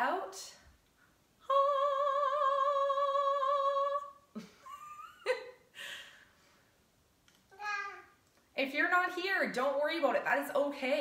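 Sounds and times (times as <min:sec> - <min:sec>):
woman singing operatic note: 0:01.5 - 0:04.1.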